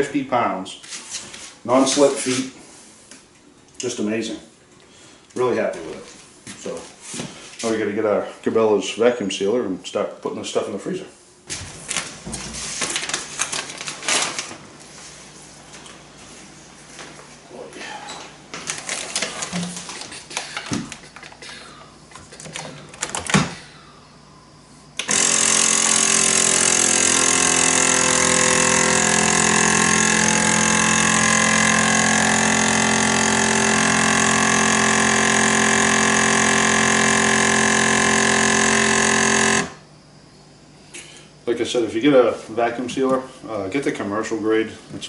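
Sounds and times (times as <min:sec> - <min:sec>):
vacuum sealer pump running: 0:24.9 - 0:40.1.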